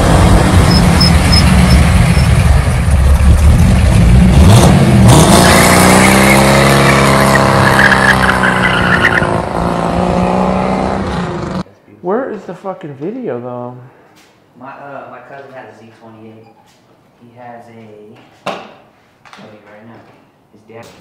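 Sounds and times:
car engine revving hard: 0:03.2 - 0:11.6
tyres squealing: 0:05.4 - 0:09.4.

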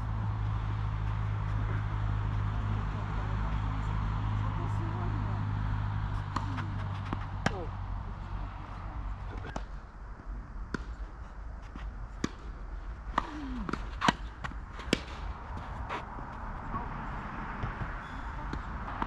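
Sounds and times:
tennis ball bouncing on court: 0:06.0 - 0:07.7, 0:10.7 - 0:11.0, 0:11.7 - 0:16.0, 0:17.5 - 0:19.0
tennis ball hit by racket: 0:06.1 - 0:07.7, 0:10.7 - 0:11.0, 0:12.2 - 0:16.0.

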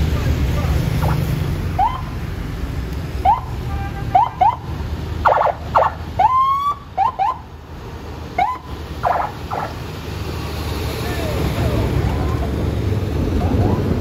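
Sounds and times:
heavy truck engine rumble: 0:00.0 - 0:14.0
vehicle siren whooping: 0:01.7 - 0:02.1, 0:03.2 - 0:03.5, 0:04.2 - 0:07.4, 0:08.4 - 0:09.8, 0:13.3 - 0:14.0.

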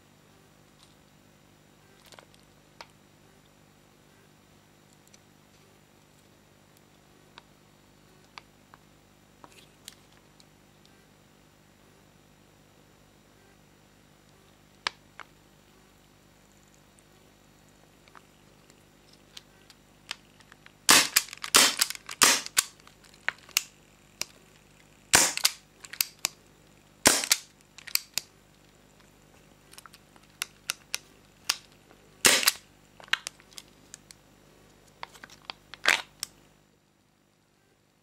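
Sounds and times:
airsoft pistol metallic clicks and snaps: 0:20.9 - 0:22.8, 0:25.2 - 0:26.4, 0:27.1 - 0:28.3, 0:32.3 - 0:32.6.

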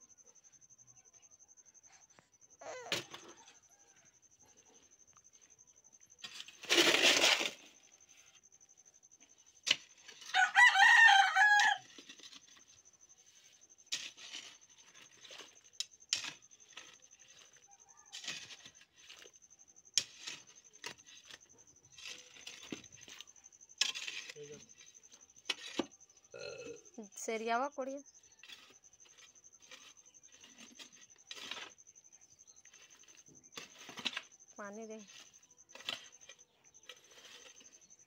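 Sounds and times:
rooster crowing: 0:03.2 - 0:04.3, 0:10.2 - 0:11.9
hoe scraping soil: 0:06.2 - 0:08.6, 0:09.2 - 0:26.2, 0:27.0 - 0:38.0.

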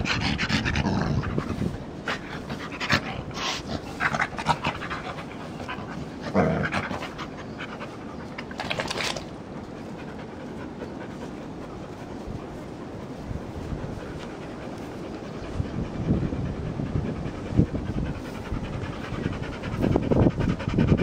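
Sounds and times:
dog panting: 0:00.0 - 0:21.0
dog rolling in grass rustling: 0:00.6 - 0:07.6.

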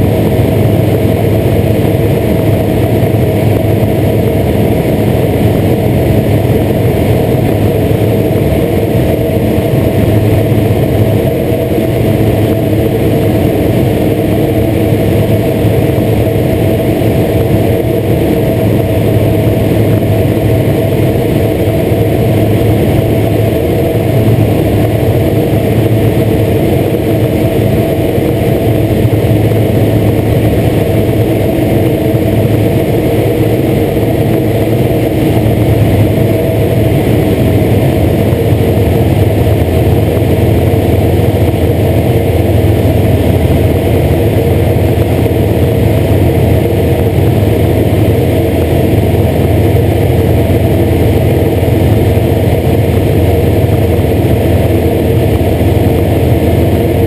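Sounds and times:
propeller aircraft engine running: 0:00.0 - 0:57.0.

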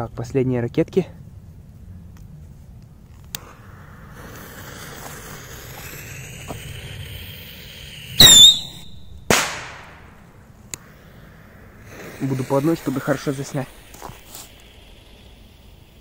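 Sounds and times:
firework fuse hissing: 0:02.2 - 0:16.0
rocket whistling screech: 0:03.4 - 0:09.9
firework bang: 0:08.2 - 0:10.2.

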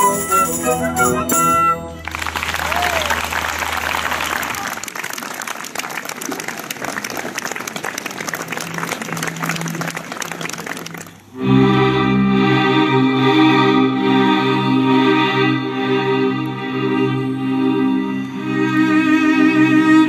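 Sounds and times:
audience applauding: 0:01.9 - 0:11.4.

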